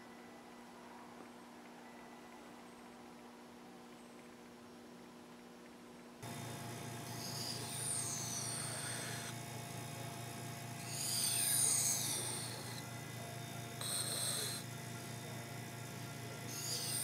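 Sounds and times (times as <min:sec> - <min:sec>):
steady low hum: 0:00.0 - 0:17.0
knife scraping on whetstone: 0:07.1 - 0:09.4, 0:10.8 - 0:12.8, 0:13.8 - 0:14.7, 0:16.5 - 0:17.0.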